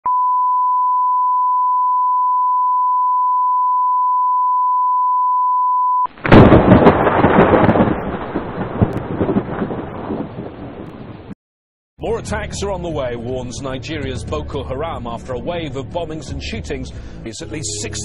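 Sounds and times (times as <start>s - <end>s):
steady reference tone beep: 0.1s - 6.1s
loud dense rumbling with cracks: 6.2s - 11.4s.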